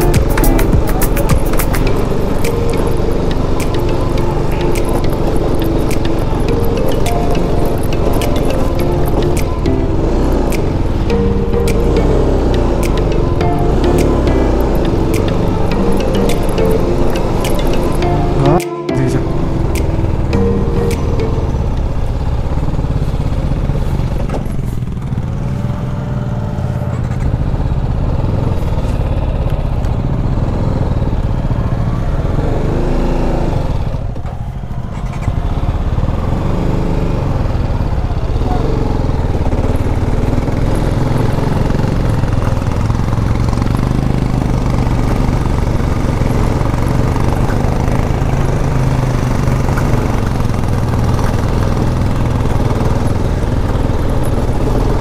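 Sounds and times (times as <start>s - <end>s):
road and wind noise: 0.0s - 18.4s, 19.2s - 55.0s
motorcycle engine running: 21.3s - 55.0s.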